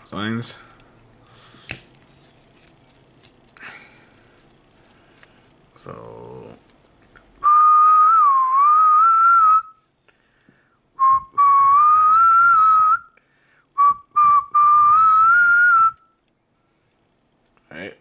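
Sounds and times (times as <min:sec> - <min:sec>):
person whistling: 0:07.4 - 0:09.8, 0:11.0 - 0:13.2, 0:13.8 - 0:16.2.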